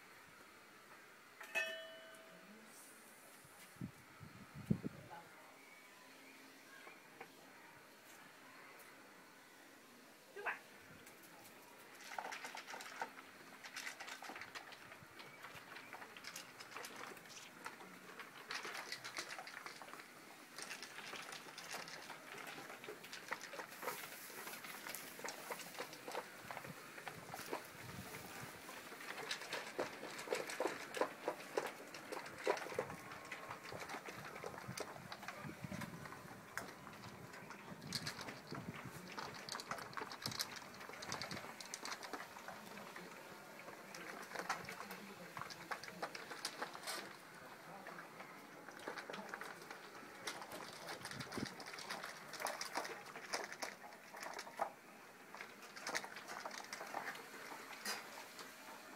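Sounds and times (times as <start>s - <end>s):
dogs chewing and licking: 11.8s - 58.9s.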